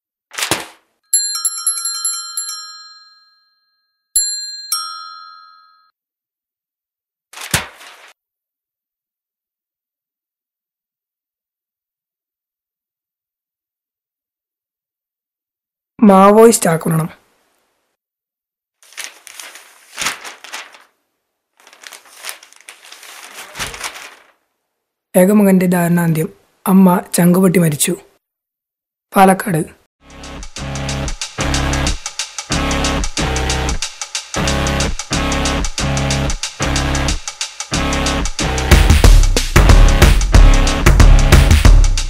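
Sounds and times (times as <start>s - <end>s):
newspaper pages rustling: 0.3s - 0.8s, 7.3s - 8.2s, 18.8s - 24.5s
bicycle bell ringing: 1.1s - 5.9s.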